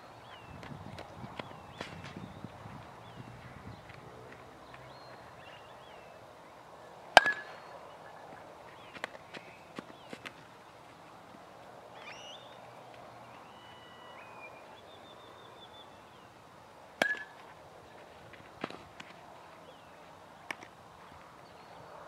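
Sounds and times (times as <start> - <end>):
bat striking ball: 1.4 - 2.4, 7.2 - 7.7, 17.0 - 17.5
faint bird chirps: 12.0 - 12.6, 13.3 - 16.4.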